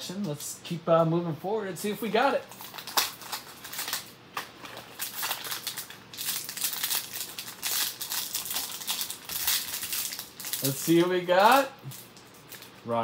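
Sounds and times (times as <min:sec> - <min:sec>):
foil wrapper crinkling: 0:02.4 - 0:13.0.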